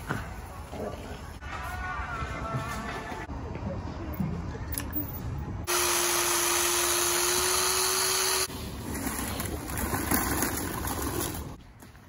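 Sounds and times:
chainsaw running: 5.7 - 8.5.

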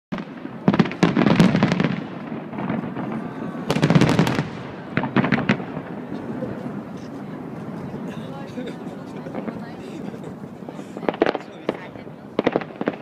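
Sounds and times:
firework shells bursting and crackling: 0.1 - 6.1, 10.6 - 13.0.

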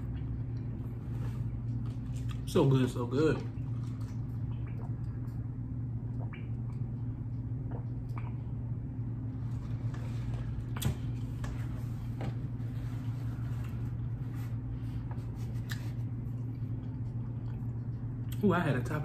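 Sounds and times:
steady low hum: 0.0 - 19.0
sipping and swallowing: 3.3 - 8.8, 15.1 - 18.4.

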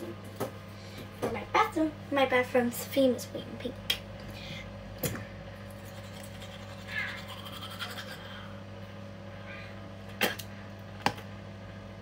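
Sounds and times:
steady low hum: 0.0 - 12.0
toothbrush scrubbing teeth: 5.7 - 8.4.

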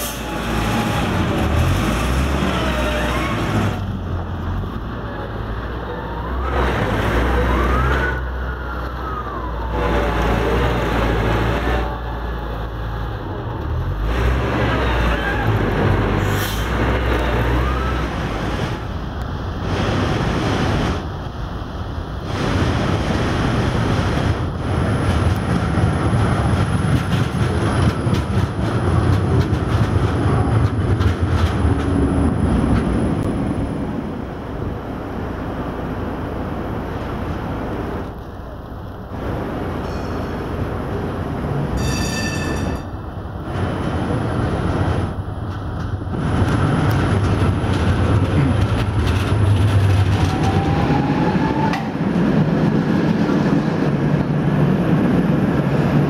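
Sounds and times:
trams rumbling on rails: 0.0 - 56.0
tram motor rising whine: 22.5 - 56.0
short ringing tone: 41.8 - 43.0.

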